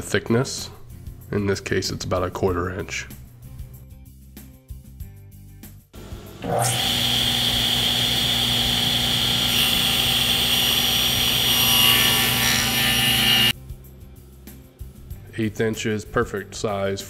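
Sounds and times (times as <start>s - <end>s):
table saw cutting wood: 6.0s - 13.5s.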